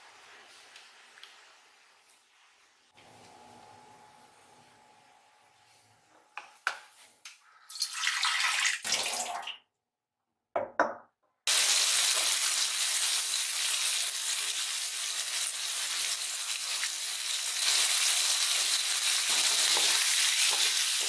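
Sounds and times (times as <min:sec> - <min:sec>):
food sizzling in hot oil: 0:11.5 - 0:21.0.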